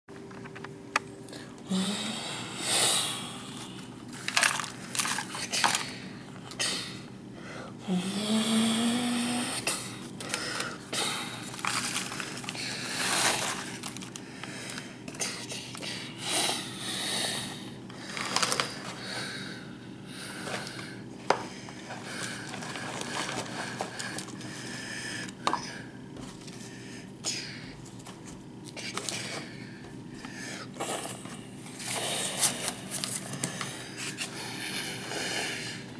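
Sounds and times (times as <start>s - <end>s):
paper and cardboard rustling: 4.2s - 5.9s, 11.4s - 14.2s, 18.1s - 19.0s, 22.2s - 24.5s.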